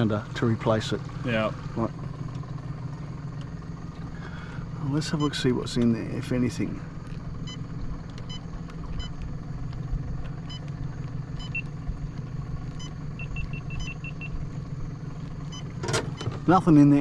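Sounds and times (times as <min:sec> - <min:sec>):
outboard motor idling: 0:00.0 - 0:17.0
short high-pitched beeps: 0:11.4 - 0:11.7, 0:12.8 - 0:14.4.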